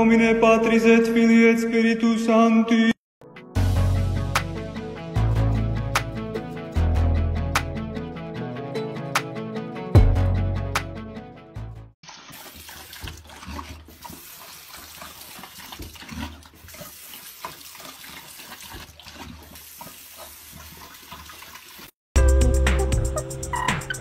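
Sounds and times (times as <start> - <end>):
background music: 3.2 - 12.0, 22.2 - 24.0
dog lapping water: 12.1 - 21.9
tap water running into sink: 12.1 - 22.0.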